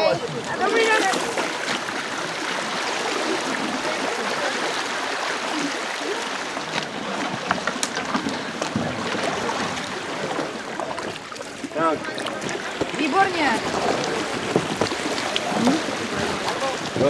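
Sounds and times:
river water rushing over stones: 0.0 - 17.0.

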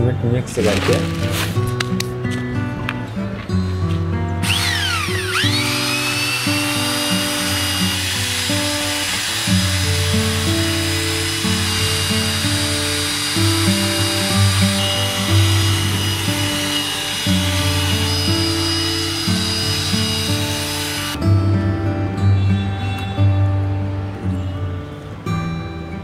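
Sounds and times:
electric drill mixer whining: 4.4 - 21.2.

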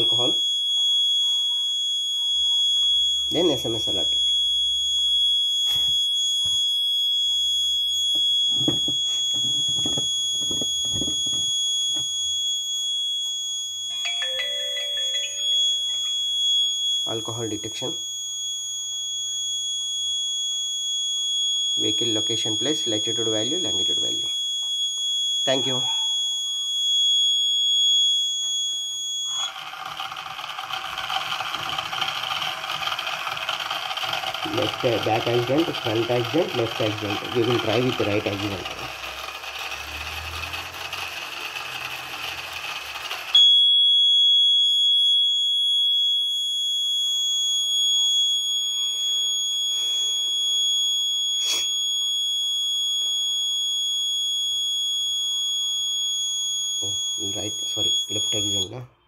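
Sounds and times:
high continuous buzzer tone: 0.0 - 42.1, 43.0 - 59.0
small motors whirring: 29.3 - 43.4.

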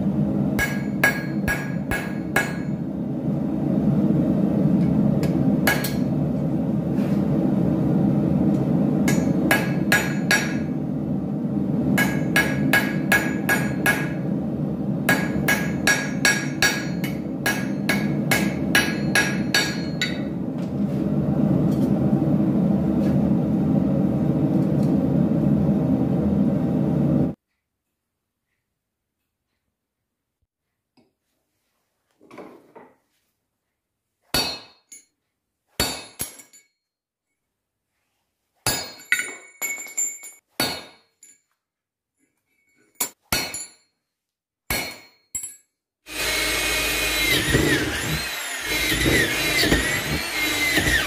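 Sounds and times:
hammer striking iron on anvil: 0.6 - 2.8, 5.2 - 6.2, 9.0 - 10.8, 12.0 - 14.2, 15.1 - 20.3, 34.4 - 34.9, 35.8 - 36.7, 38.7 - 39.8, 40.6 - 41.3, 43.0 - 43.9, 44.7 - 45.6, 48.7 - 51.0.

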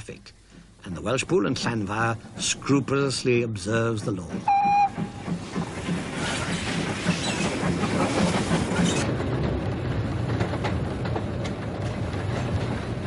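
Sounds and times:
rumble of wheels and carriages: 0.0 - 13.0
steam locomotive exhaust beats: 3.6 - 13.0.

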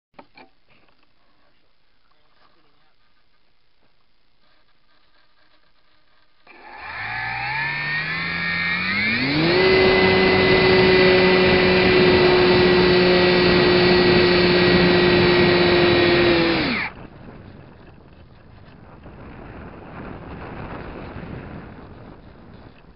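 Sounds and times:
model airplane motor whine: 6.5 - 18.7.

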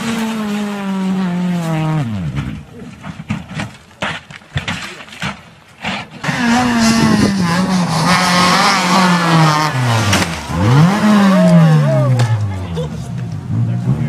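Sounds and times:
rally car engine passing: 0.0 - 2.7, 6.2 - 14.0.

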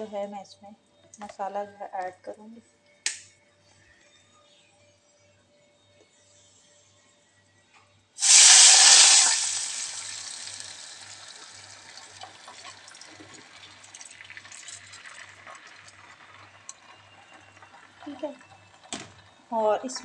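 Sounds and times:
water sizzling in hot oil: 8.2 - 19.4.

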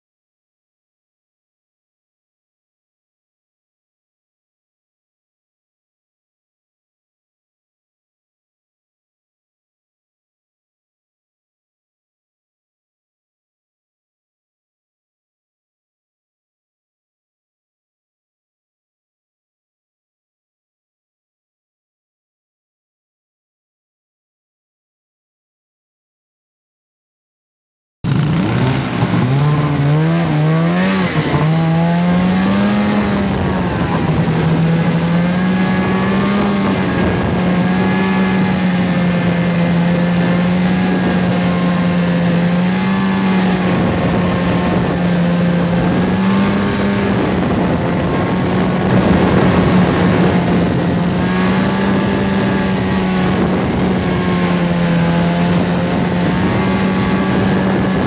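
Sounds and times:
snowmobile engine running: 28.0 - 58.0.

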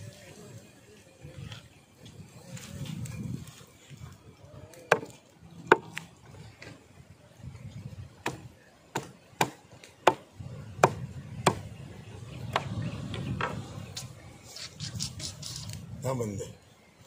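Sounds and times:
machete chopping into wood block: 10.8 - 11.6.

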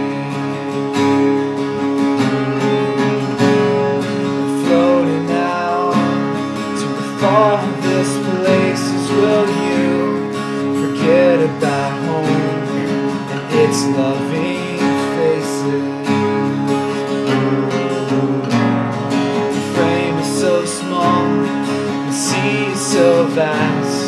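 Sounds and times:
man singing: 0.0 - 0.7, 4.3 - 17.0, 19.5 - 24.0
acoustic guitars strummed: 0.0 - 24.0.

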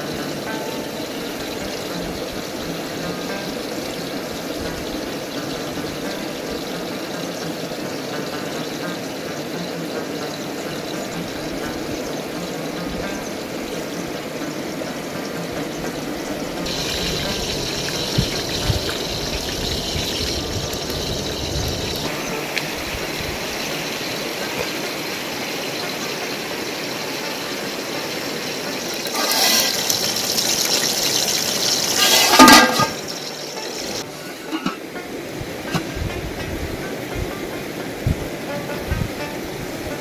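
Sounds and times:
stream rushing over stones: 16.6 - 36.1.

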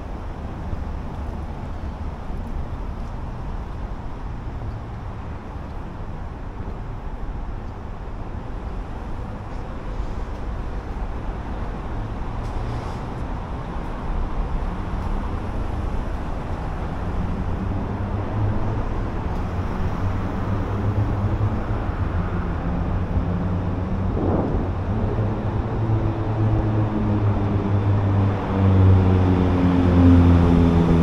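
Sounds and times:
low engine hum: 0.0 - 31.0
road traffic rumble: 0.0 - 31.0.

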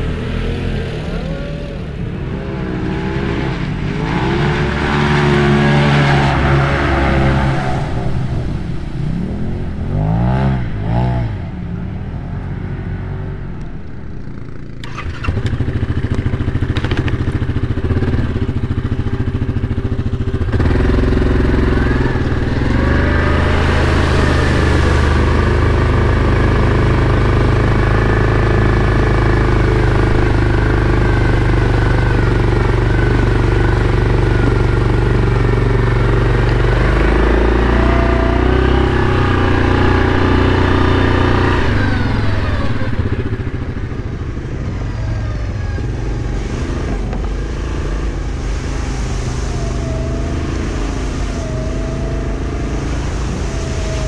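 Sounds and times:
atv engine running: 0.0 - 54.0
water splashing: 14.8 - 44.4, 46.4 - 54.0.

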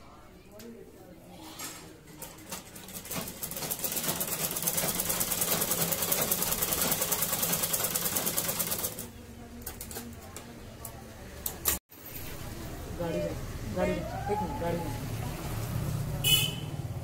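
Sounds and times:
sewing machine running: 2.5 - 9.1.

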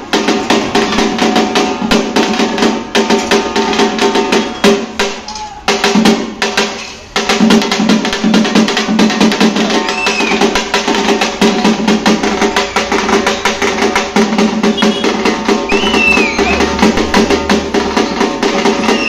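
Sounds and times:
frame drums beaten with sticks: 0.0 - 19.0
bass drums: 7.2 - 19.0.

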